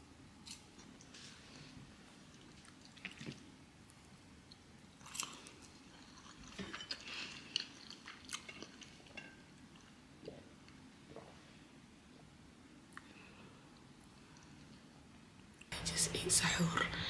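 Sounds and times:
chewing: 0.5 - 11.2.

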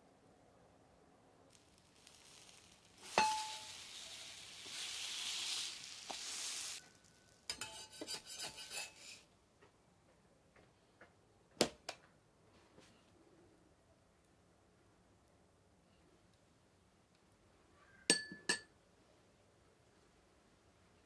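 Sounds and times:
batter sizzling: 1.5 - 9.3
spatula scraping on griddle: 1.5 - 9.3
metal spatula clanking on griddle: 3.0 - 3.8, 7.5 - 9.1.

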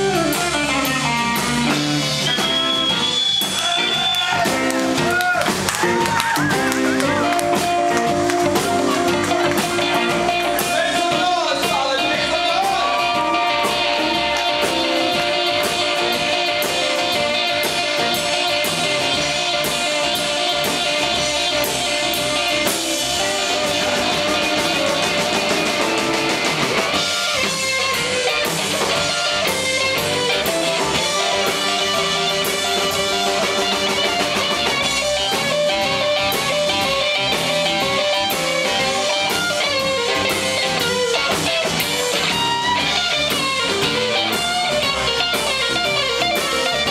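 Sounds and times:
blues-rock band playing: 0.0 - 46.9
lead electric guitar: 0.0 - 46.9.

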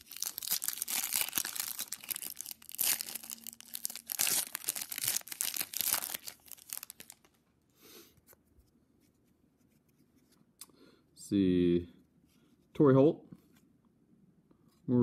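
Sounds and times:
foil wrapper tearing and crinkling: 0.0 - 7.4.

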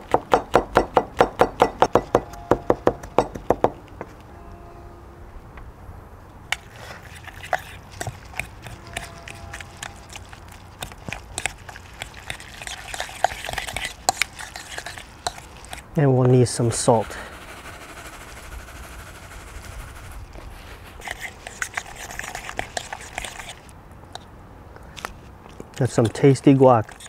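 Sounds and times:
spoon mashing food in bowl: 6.5 - 15.9, 21.0 - 24.3, 25.8 - 27.0.

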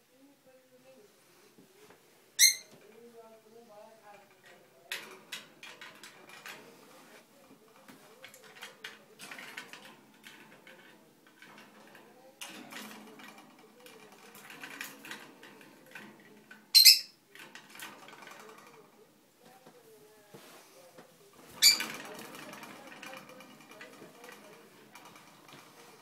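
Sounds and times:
parrot chattering and warbling: 2.4 - 2.7, 16.8 - 17.2, 21.6 - 21.9.

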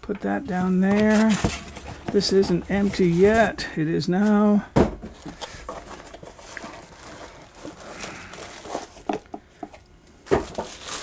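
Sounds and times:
cardboard and plastic bag rustling: 0.2 - 3.6, 5.0 - 9.3, 10.2 - 11.0.

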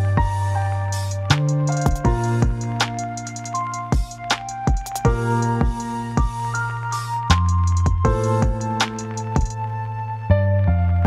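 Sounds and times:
drum hits: 1.7 - 6.4, 7.8 - 9.6.

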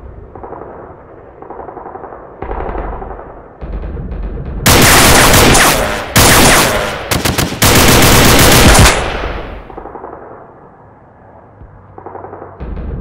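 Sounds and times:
automatic gunfire bursts: 4.7 - 9.8.

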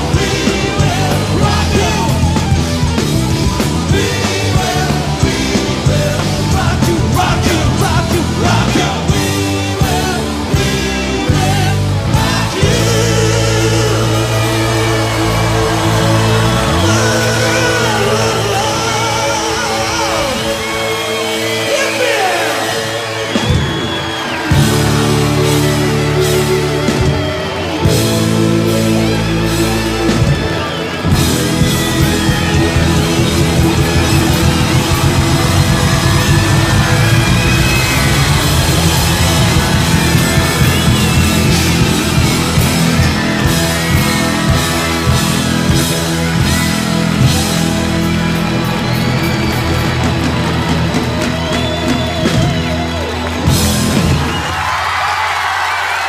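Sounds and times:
lead electric guitar bending: 0.0 - 21.3, 23.1 - 54.4
drums: 0.0 - 56.0
live rock band: 0.0 - 56.0.

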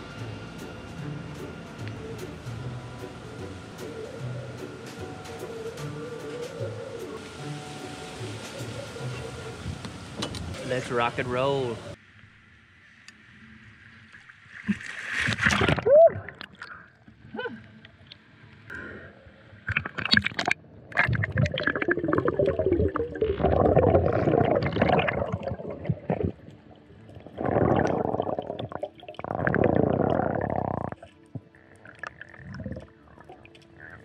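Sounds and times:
muffled underwater bubbling: 19.7 - 34.0.

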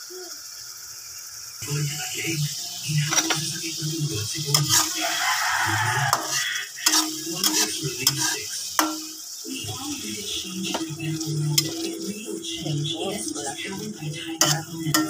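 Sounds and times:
vegetables sizzling in oil: 0.0 - 15.0
metal spatula scraping pan: 3.0 - 3.6, 4.4 - 9.2, 10.6 - 12.1, 13.0 - 15.0
spatula clinking against pan: 6.1 - 9.2, 14.4 - 15.0.

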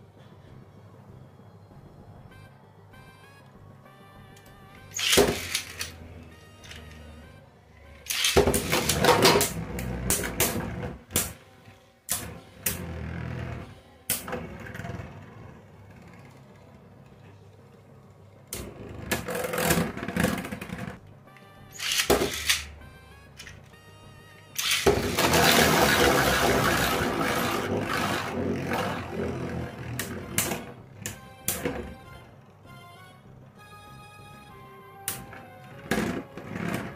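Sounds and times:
spinning tops clashing and rattling: 5.0 - 5.9, 8.1 - 9.5, 21.8 - 22.7, 24.6 - 26.4.

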